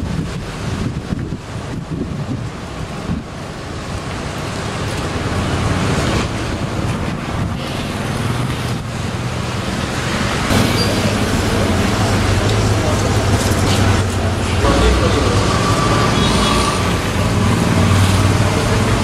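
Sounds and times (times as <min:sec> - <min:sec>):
wind on microphone: 0:00.0 - 0:04.0
rushing street noise: 0:00.0 - 0:19.0.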